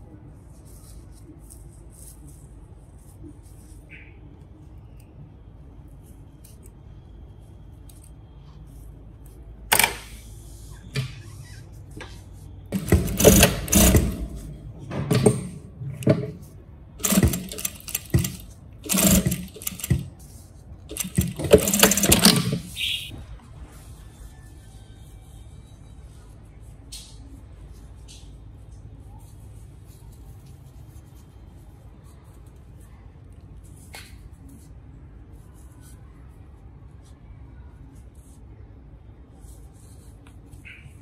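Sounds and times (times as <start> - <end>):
sewing machine stitching: 12.7 - 20.2, 20.9 - 22.8.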